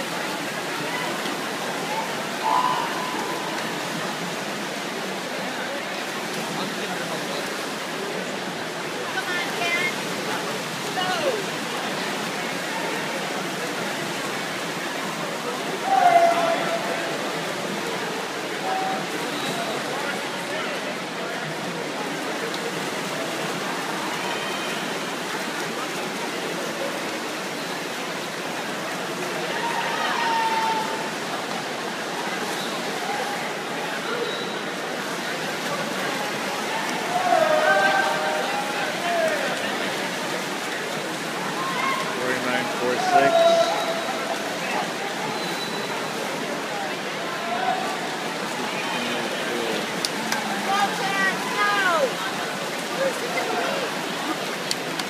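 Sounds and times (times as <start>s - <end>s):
echoing pool hall noise: 0.0s - 55.0s
swimmers splashing: 0.0s - 55.0s
spectators cheering and shouting: 0.8s - 4.0s, 15.7s - 17.4s, 29.4s - 31.6s, 36.1s - 40.2s, 41.4s - 55.0s.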